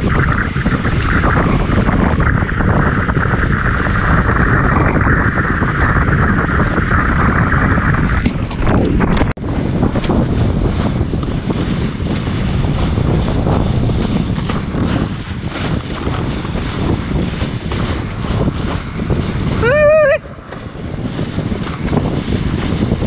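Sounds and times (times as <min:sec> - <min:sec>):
board rushing through water: 0:00.0 - 0:23.0
wind buffeting microphone: 0:00.0 - 0:23.0.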